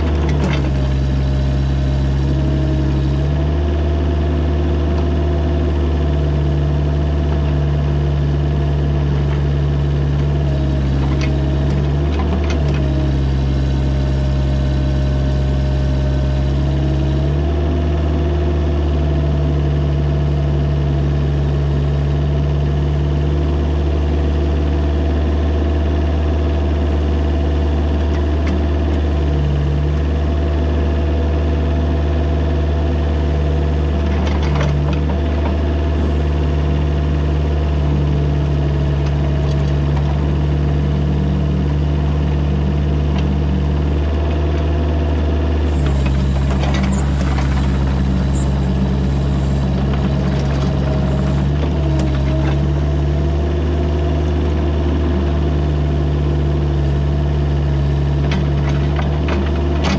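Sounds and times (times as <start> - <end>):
excavator engine running: 0.0 - 59.9
brief high squeal: 45.7 - 48.7.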